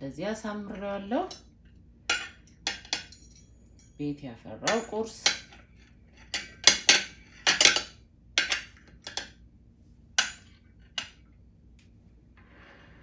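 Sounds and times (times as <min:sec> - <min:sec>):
forks clinking on ceramic plate: 0:06.2 - 0:09.3.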